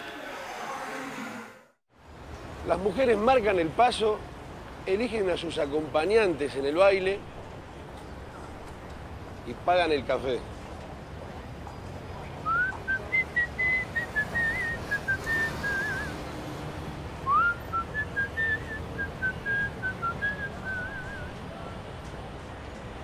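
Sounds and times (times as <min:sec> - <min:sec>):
person whistling a tune: 0:12.4 - 0:16.2, 0:17.2 - 0:21.4.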